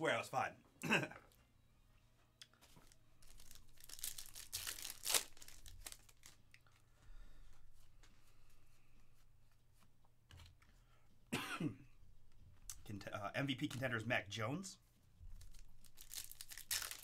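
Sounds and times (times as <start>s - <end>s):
cards rustling: 2.6s - 6.8s, 15.4s - 17.0s
foil wrapper tearing: 3.2s - 6.4s, 15.4s - 17.0s.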